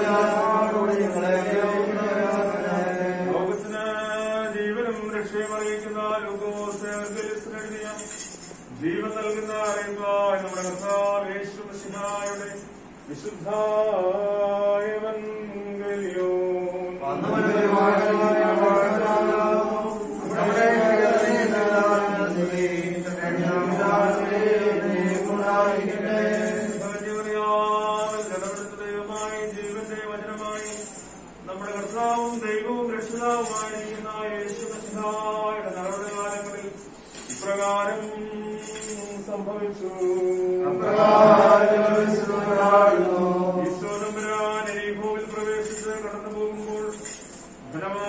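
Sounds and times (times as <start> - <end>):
person chanting: 0.0 - 6.7, 13.4 - 28.8, 37.5 - 46.1.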